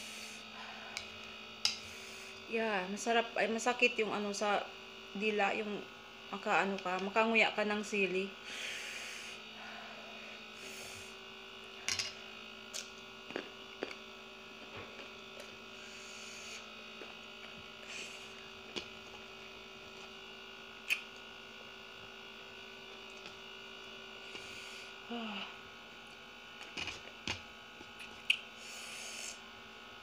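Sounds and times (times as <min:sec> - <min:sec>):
steady electrical hum: 0:00.0 - 0:30.0
chewing and mouth smacks: 0:28.0 - 0:28.4.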